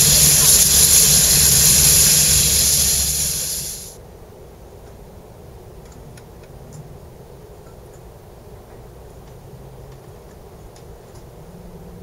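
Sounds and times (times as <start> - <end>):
low rumble: 0.0 - 3.9
steam hissing: 0.0 - 4.0.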